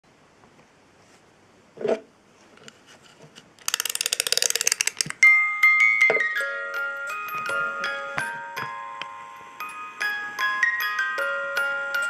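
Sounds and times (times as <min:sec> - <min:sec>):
music box key ratchet clicking: 0:03.6 - 0:05.2.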